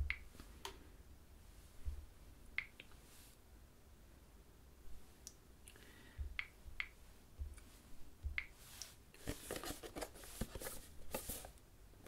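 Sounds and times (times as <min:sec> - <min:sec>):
rustling: 0:08.6 - 0:11.6.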